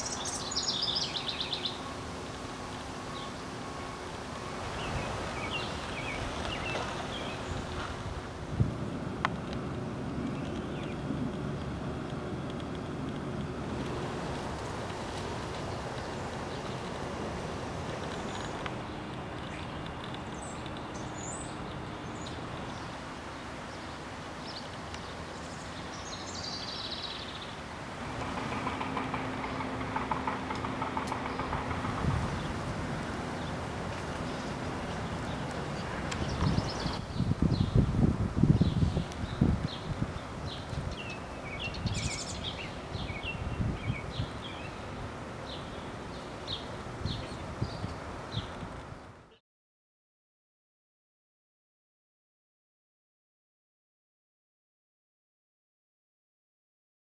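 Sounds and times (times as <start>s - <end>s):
small birds chirping: 0.0s - 3.6s, 4.4s - 8.0s, 9.2s - 11.4s, 15.0s - 27.6s, 33.4s - 49.1s
wind rumble on microphone: 4.2s - 24.2s, 26.8s - 49.2s
bird rattling chatter: 28.1s - 32.5s.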